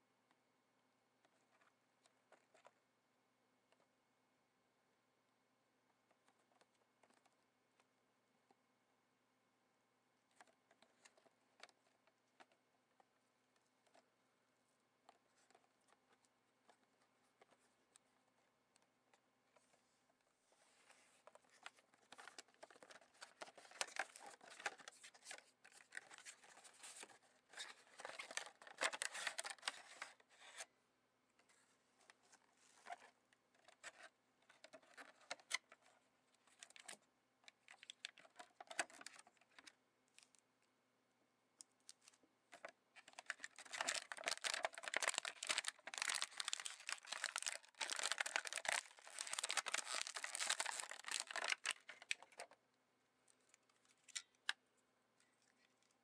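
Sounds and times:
plastic bag crinkling: 0:42.5 - 0:52.6
cardboard box being opened: 0:43.6 - 0:52.1.

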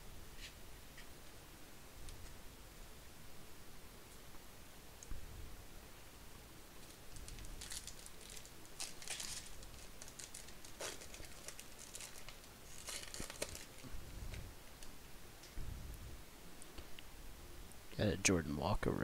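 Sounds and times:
wrapper crinkling and tearing: 0:06.8 - 0:13.9.

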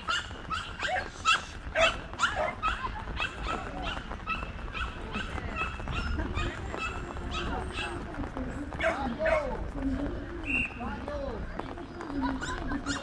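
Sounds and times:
dog barking: 0:00.0 - 0:06.1.

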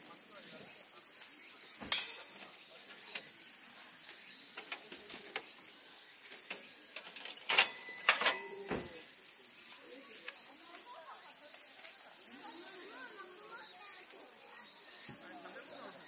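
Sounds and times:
camping gear clicks and knocks: 0:06.3 - 0:09.0.

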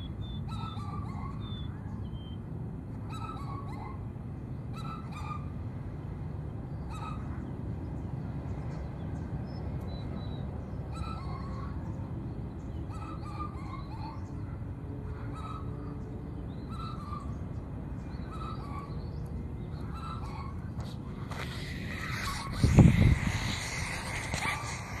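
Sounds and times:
birds chirping: 0:15.4 - 0:25.0
low rumble: 0:21.0 - 0:25.0.

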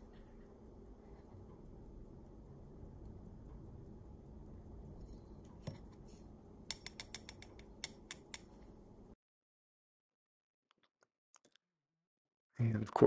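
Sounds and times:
low steady hum: 0:00.0 - 0:09.2
tweezers clicking on metal parts: 0:06.6 - 0:08.6.

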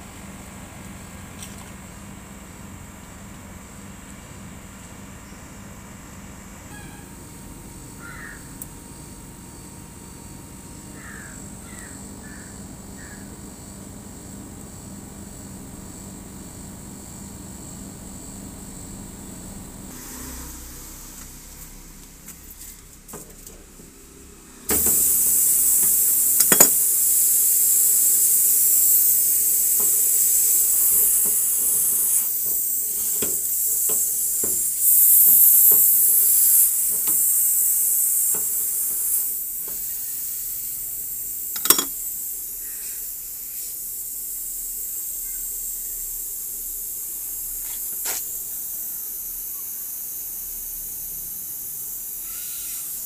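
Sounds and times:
refrigerant gas hissing: 0:00.0 - 0:53.0
spanner clicking on metal fittings: 0:24.8 - 0:39.9, 0:41.5 - 0:42.2.

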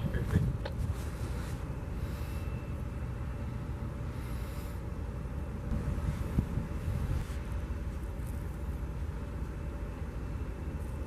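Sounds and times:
distant ship engines rumbling: 0:00.0 - 0:11.0.

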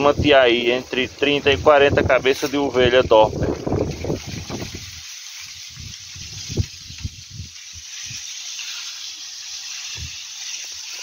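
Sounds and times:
wind buffeting thumps: 0:00.0 - 0:08.2, 0:09.9 - 0:10.2
wind hiss on microphone: 0:00.0 - 0:11.0.

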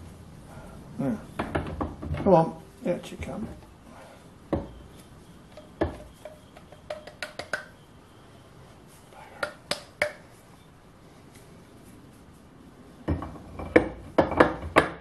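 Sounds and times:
metal mould knocking on vise: 0:05.6 - 0:07.6, 0:13.1 - 0:15.0.

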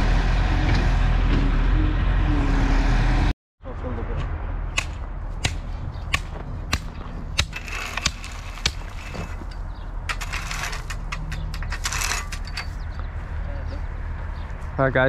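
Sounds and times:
loader engine running: 0:00.0 - 0:03.3
stone crunching and scraping: 0:07.0 - 0:12.9.

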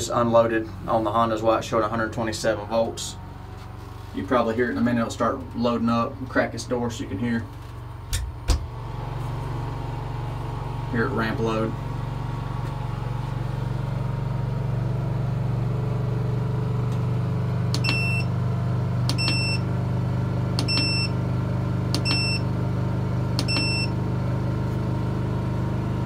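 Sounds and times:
generator humming: 0:00.0 - 0:26.0
short electronic beeps: 0:17.8 - 0:18.3, 0:19.1 - 0:19.6, 0:20.6 - 0:21.1, 0:22.0 - 0:22.4, 0:23.4 - 0:23.9.

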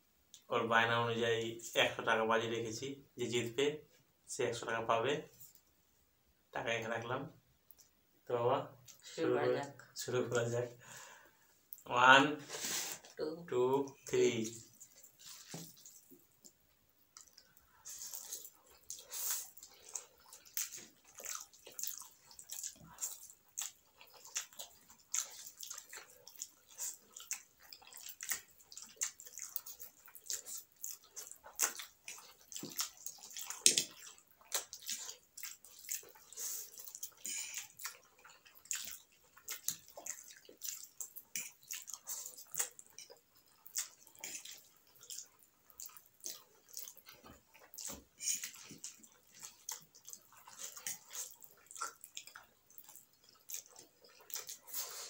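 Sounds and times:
slurping and chewing noodles: 0:14.0 - 0:16.5, 0:17.1 - 0:55.0.

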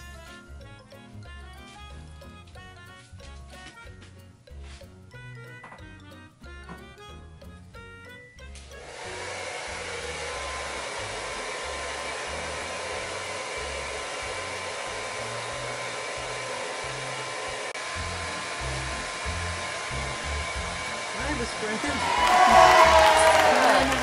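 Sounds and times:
thin steady whine: 0:08.8 - 0:17.3.

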